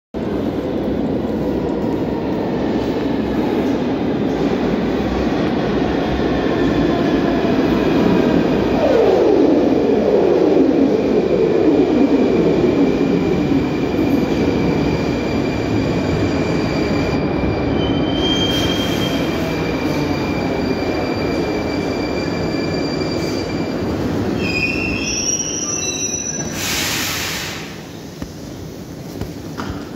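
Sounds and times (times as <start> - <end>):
metro train wheels rumbling: 0.2 - 29.9
burst of hiss: 26.4 - 27.9.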